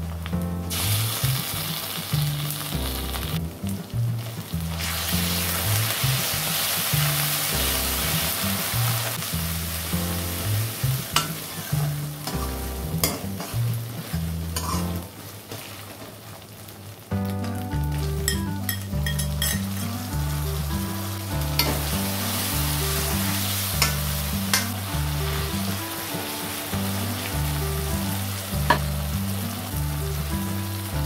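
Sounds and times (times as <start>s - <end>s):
background music with bass: 0.0s - 15.1s, 17.2s - 31.0s
onions sizzling in hot oil: 0.1s - 31.0s
ladle stirring and scraping pan: 10.5s - 15.8s, 18.3s - 20.1s, 21.5s - 25.8s
ladle clinking against pan: 14.6s - 14.9s, 18.3s - 19.9s.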